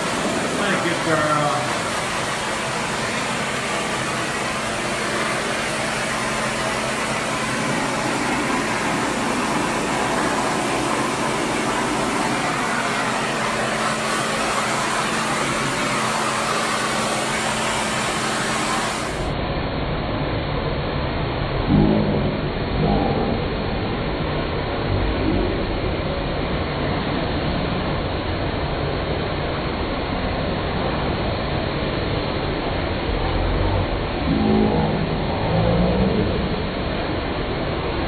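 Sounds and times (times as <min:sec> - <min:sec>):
dog dryer blowing air: 0:00.0 - 0:19.4
motor hum: 0:00.0 - 0:19.4, 0:32.5 - 0:38.0.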